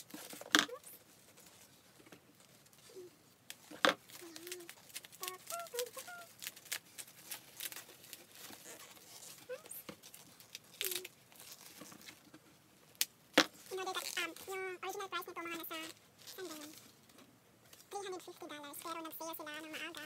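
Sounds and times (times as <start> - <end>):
tissue paper rustling: 0.0 - 12.2.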